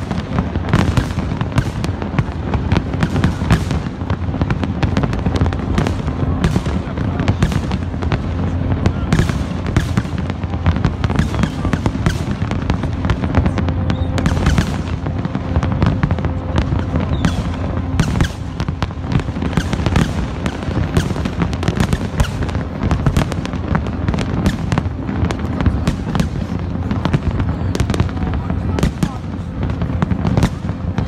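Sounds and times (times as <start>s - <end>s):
fireworks bangs and crackling pops: 0.0s - 31.0s
low rumble of distant bursts: 0.0s - 31.0s.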